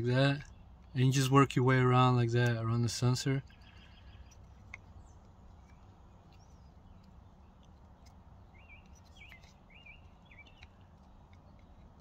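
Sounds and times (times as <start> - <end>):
low steady background rumble: 0.0 - 12.0
small bird chirping: 3.4 - 12.0.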